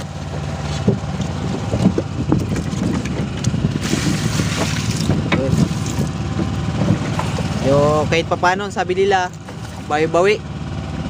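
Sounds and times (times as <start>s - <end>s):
boat engine running: 0.0s - 11.0s
water poured from a bucket: 2.6s - 6.1s.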